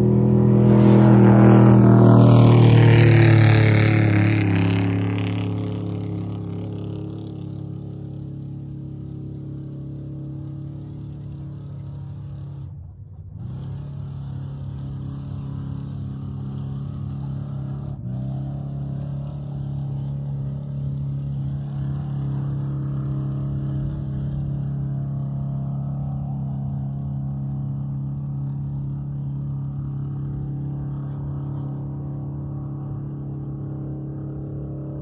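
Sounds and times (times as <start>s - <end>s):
engine running: 0.0s - 35.0s.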